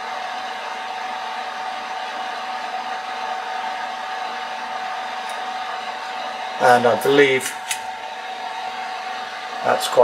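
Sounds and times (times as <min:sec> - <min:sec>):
electric fan running: 0:00.0 - 0:10.0.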